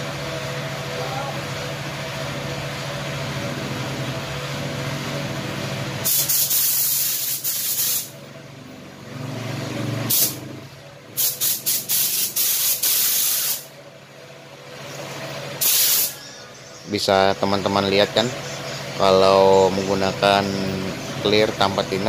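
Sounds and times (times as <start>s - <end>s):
motor hum: 0.0s - 6.1s, 13.7s - 22.0s
spray gun hissing: 6.0s - 8.1s, 10.1s - 10.4s, 11.2s - 13.7s, 15.6s - 16.2s.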